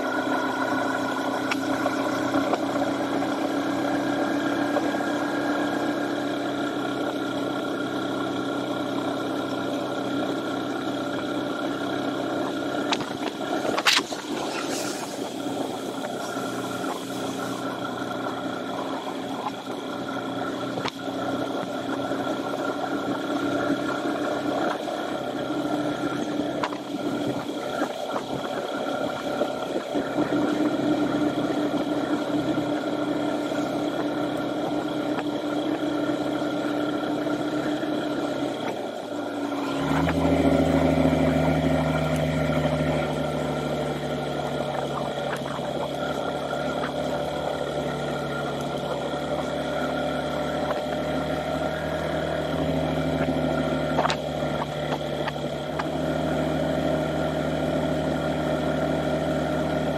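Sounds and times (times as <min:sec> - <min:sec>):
motorcycle engine running: 0:00.0 - 0:59.9
road noise: 0:00.0 - 0:59.9
wind noise: 0:12.9 - 0:17.6.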